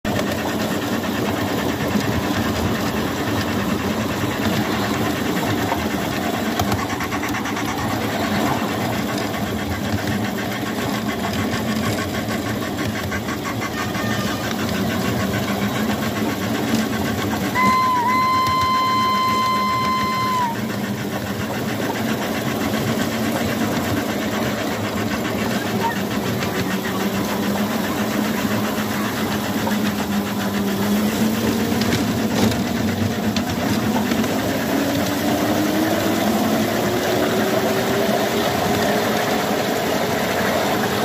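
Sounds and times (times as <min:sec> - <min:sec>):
miniature locomotive rumble: 0:00.0 - 0:41.0
wheels clattering on rails: 0:00.1 - 0:41.0
steady whistle tone: 0:17.4 - 0:20.8.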